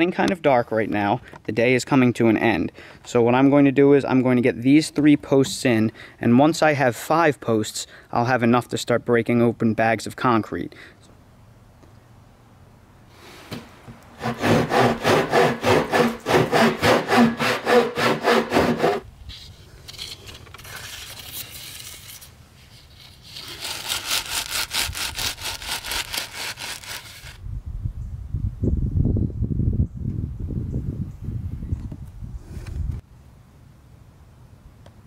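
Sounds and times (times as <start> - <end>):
hand saw cutting cardboard tube: 14.2 - 19.1, 22.9 - 27.4.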